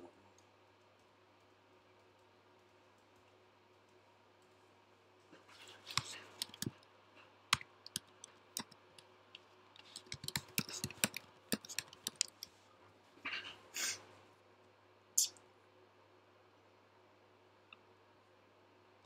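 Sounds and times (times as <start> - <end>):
keyboard typing: 5.8 - 6.8, 7.5 - 9.1, 9.8 - 12.5.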